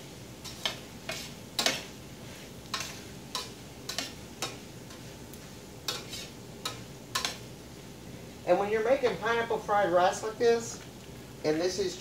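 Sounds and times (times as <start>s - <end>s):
rice sizzling: 0.0s - 12.0s
utensil scraping a steel pan: 0.4s - 5.0s, 5.9s - 7.4s.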